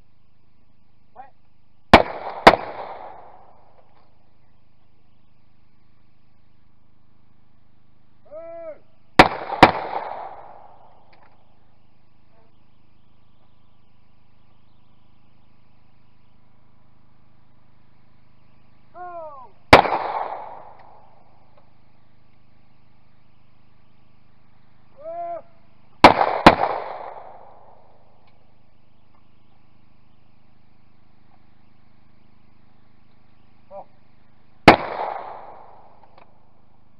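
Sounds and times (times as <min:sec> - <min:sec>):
person shouting call: 0:01.2 - 0:01.4, 0:08.2 - 0:08.9, 0:18.9 - 0:19.6, 0:25.0 - 0:25.6
shotgun shots: 0:01.9 - 0:03.8, 0:09.2 - 0:11.4, 0:19.7 - 0:21.4, 0:26.0 - 0:28.0, 0:34.6 - 0:36.4.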